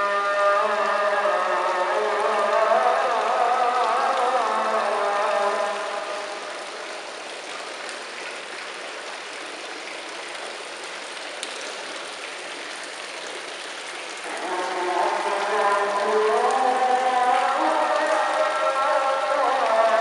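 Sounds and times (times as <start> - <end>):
sung call to prayer: 0.0 - 6.5, 14.2 - 20.0
fountain water trickling: 0.0 - 20.0.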